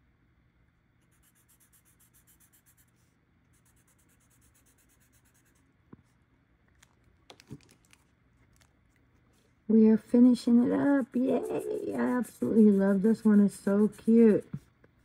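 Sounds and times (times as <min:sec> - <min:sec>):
marker scribbling on paper: 0:01.0 - 0:05.6, 0:10.5 - 0:14.7.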